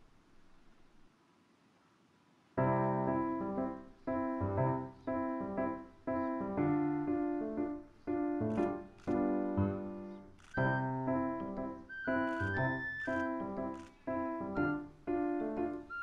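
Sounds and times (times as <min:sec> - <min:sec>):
piano chords: 0:02.6 - 0:16.0.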